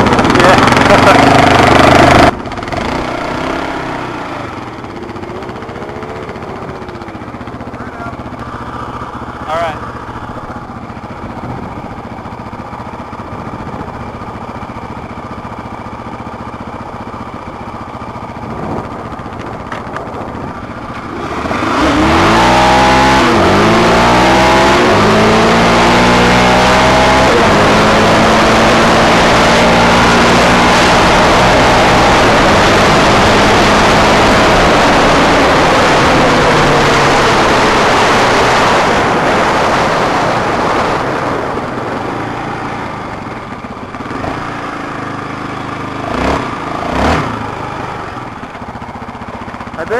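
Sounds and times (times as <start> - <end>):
quad engine revving: 0.0 - 49.9
wind rushing: 18.2 - 23.9.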